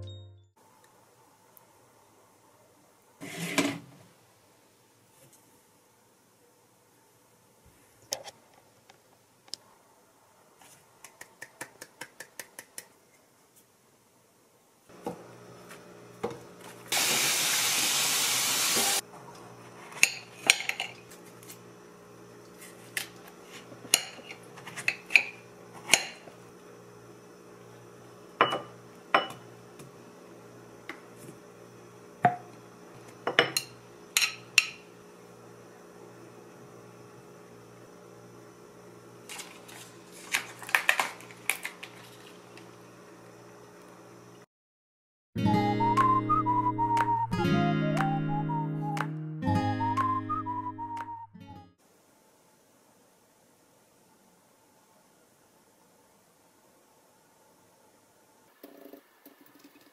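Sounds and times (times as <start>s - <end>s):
glass bowl and spoon clinking: 20.0s - 21.0s
yogurt pouring: 58.5s - 59.9s.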